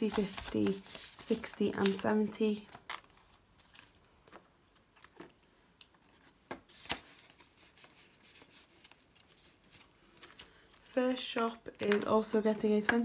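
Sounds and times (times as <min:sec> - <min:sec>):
banknotes rustling: 0:00.0 - 0:05.3.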